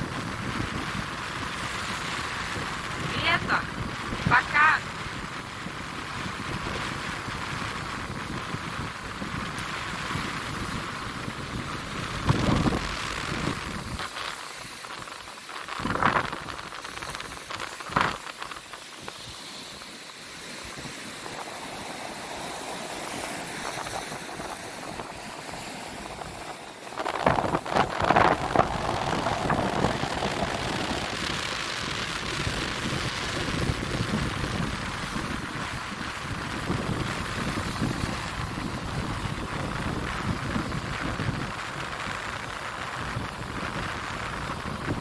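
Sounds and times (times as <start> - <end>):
surf washing onto beach: 0.0 - 45.0
wind buffeting microphone: 0.0 - 45.0.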